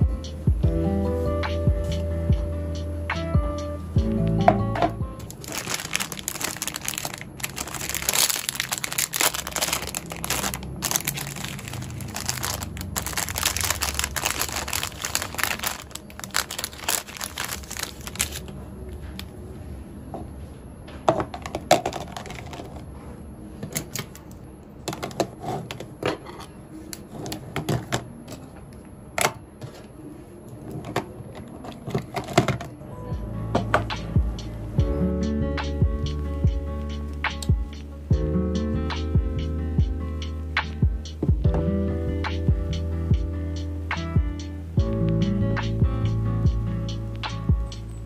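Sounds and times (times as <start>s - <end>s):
plastic packet crinkling: 5.2s - 18.6s, 21.9s - 22.8s.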